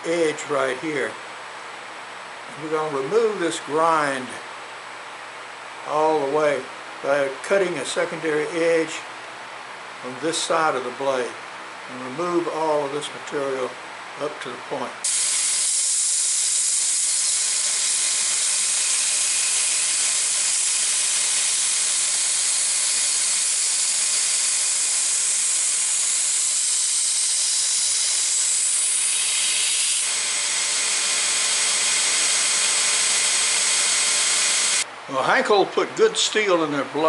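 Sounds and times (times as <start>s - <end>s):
knife grinding on belt grinder: 15.1s - 34.8s
motor hum: 17.4s - 34.9s.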